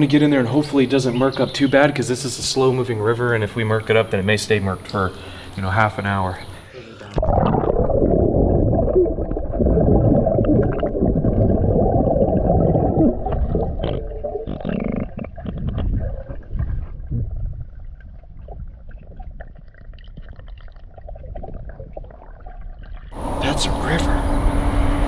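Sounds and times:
muffled underwater sloshing: 6.3s - 25.0s.

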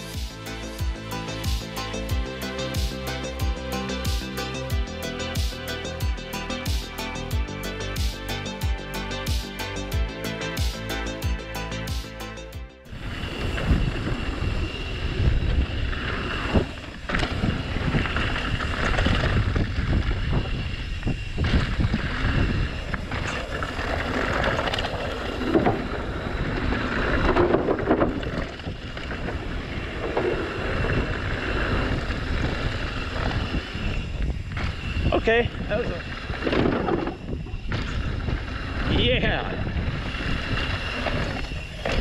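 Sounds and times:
tyres rolling on loose dirt: 12.9s - 42.0s
wind buffeting microphone: 12.9s - 42.0s
bike knocks and rattles: 23.0s - 33.4s, 36.1s - 38.7s.

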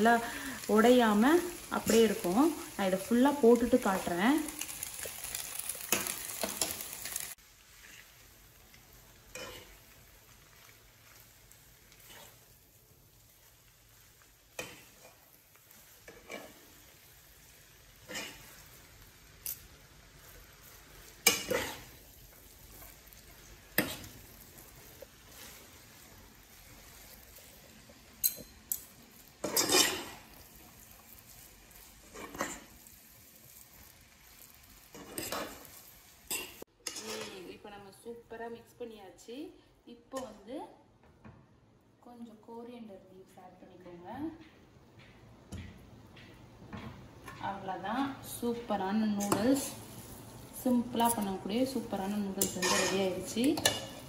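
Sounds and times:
food sizzling: 0.0s - 39.2s, 42.1s - 54.0s
forks scraping frying pan: 5.0s - 8.2s, 9.3s - 9.9s, 11.9s - 12.5s, 16.0s - 16.7s, 18.0s - 18.7s, 21.2s - 22.0s, 29.4s - 30.3s, 32.0s - 32.7s, 34.9s - 35.7s, 36.3s - 37.5s, 52.3s - 54.0s.

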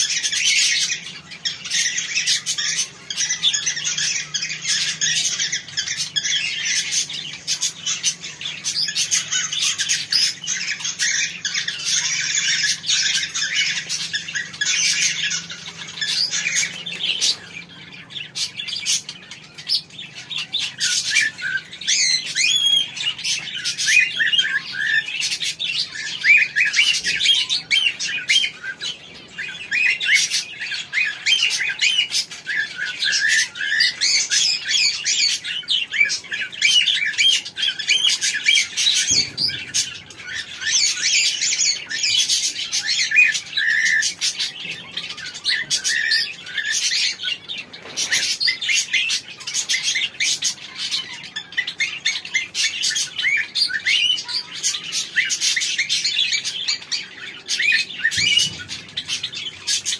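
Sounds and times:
cockatiels chirping: 0.0s - 59.9s.

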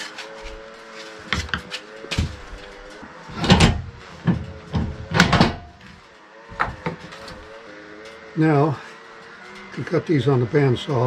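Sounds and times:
wooden knocks and clatters: 1.2s - 2.7s, 3.4s - 5.7s.

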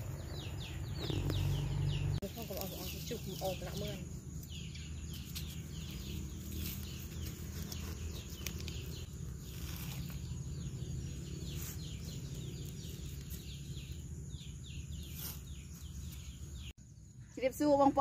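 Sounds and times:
low outdoor rumble: 0.0s - 18.0s
small birds chirping: 0.0s - 18.0s.

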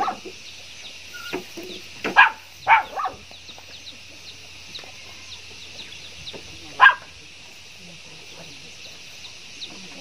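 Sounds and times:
dog barking: 0.0s - 0.3s, 2.1s - 3.3s, 6.8s - 7.1s
faint bird chirps: 0.0s - 10.0s
steady high hiss: 0.0s - 10.0s.

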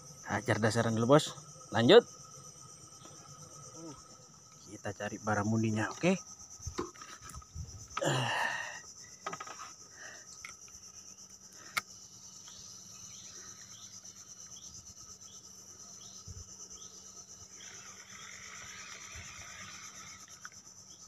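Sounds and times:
insects droning: 0.0s - 21.0s.

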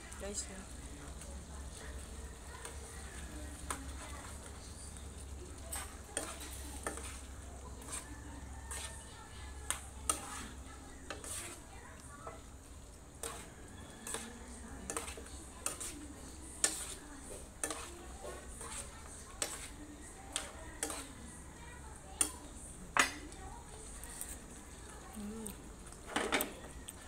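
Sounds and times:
stew sizzling: 0.0s - 27.0s
spatula scraping a frying pan: 1.7s - 22.4s.

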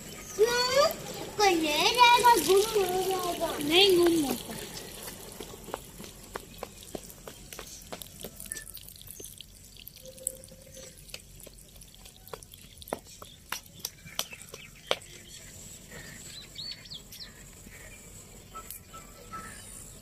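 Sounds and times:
birds chirping: 0.0s - 20.0s
water dripping from bucket: 0.5s - 7.2s, 7.9s - 15.0s.

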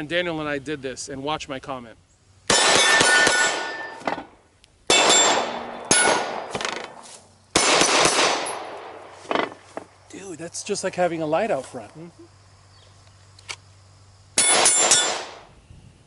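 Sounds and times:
pistol shots echoing: 2.5s - 4.0s, 4.9s - 9.1s, 14.4s - 15.4s
steel targets ringing: 2.5s - 4.1s, 4.9s - 6.6s, 14.4s - 15.4s.

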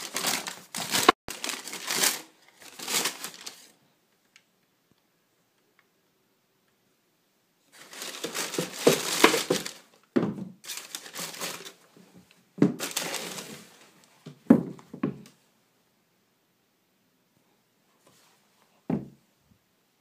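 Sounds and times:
tissue paper crinkling: 0.0s - 3.8s, 7.7s - 9.9s, 10.6s - 11.8s, 12.8s - 13.9s.

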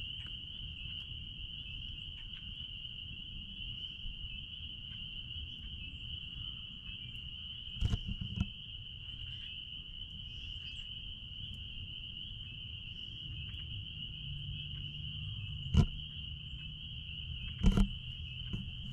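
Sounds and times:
spring peepers chorus: 0.0s - 18.9s
sharp thumps: 15.7s - 16.0s, 17.6s - 18.9s.

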